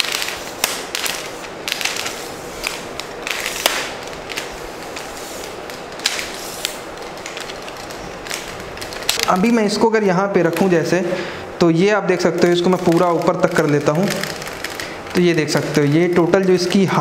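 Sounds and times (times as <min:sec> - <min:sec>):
tripod legs sliding and rattling: 0:00.0 - 0:09.3.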